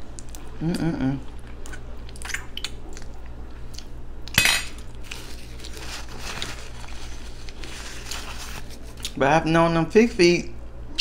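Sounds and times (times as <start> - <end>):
chewing meat: 0.0 - 4.0
steady low hum: 0.0 - 11.0.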